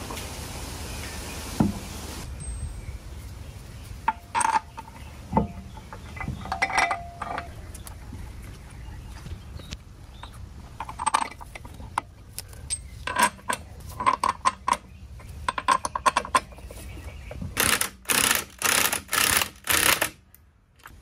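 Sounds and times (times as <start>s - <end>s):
metallic clinks of lug bolts: 4.0s - 7.6s, 12.6s - 16.7s
impact wrench bursts: 17.6s - 20.2s.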